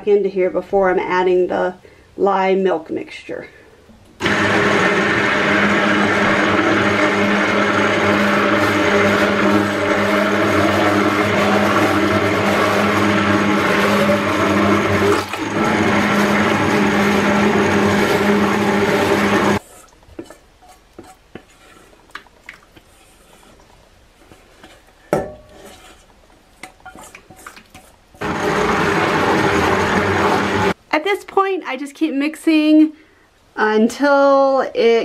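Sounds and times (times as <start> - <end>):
stick blender running: 4.2 - 19.6, 28.2 - 30.8
spatula scraping steel bowl: 7.5 - 28.8.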